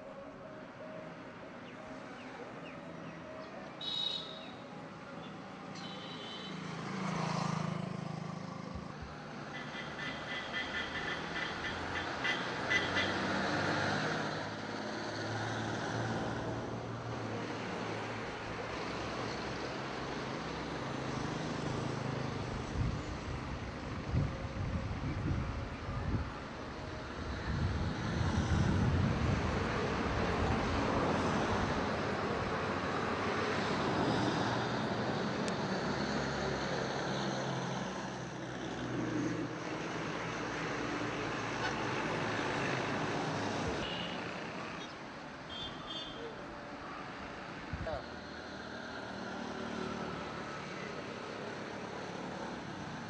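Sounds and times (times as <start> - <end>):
road traffic hum: 0.0 - 53.0
wind rumbling on microphone: 22.6 - 32.0.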